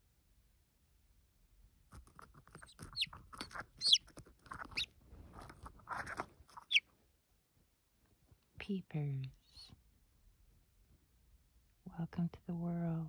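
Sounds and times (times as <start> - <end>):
chick peeping: 2.1 - 6.8.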